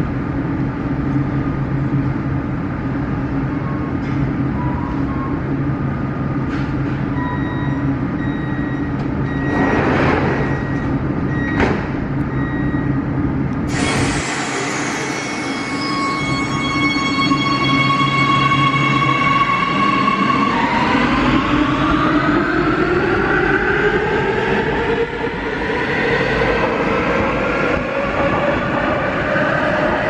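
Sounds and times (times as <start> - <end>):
train doors sliding shut: 9.5 - 12.0.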